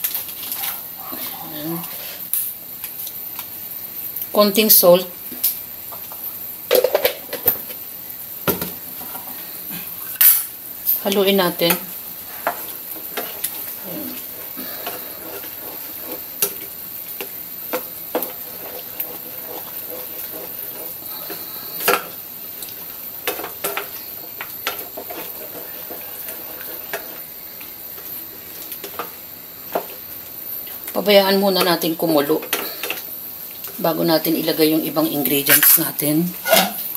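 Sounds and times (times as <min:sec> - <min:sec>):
liquid sizzling in pan: 0:00.0 - 0:36.9
spatula scraping pan: 0:00.4 - 0:02.4, 0:11.5 - 0:22.3, 0:22.9 - 0:27.4.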